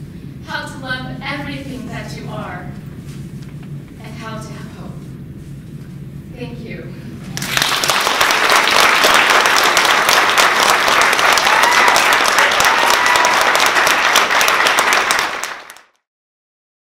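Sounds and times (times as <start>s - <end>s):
audience applauding: 7.3s - 16.0s.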